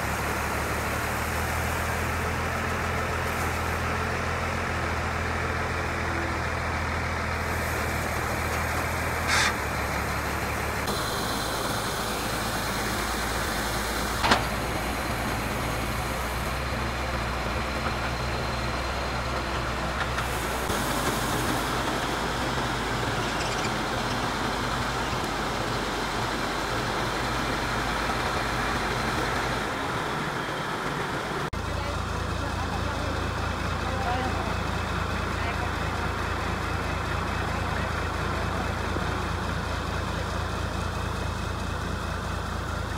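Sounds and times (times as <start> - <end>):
combine harvester engine running: 0.0 - 42.9.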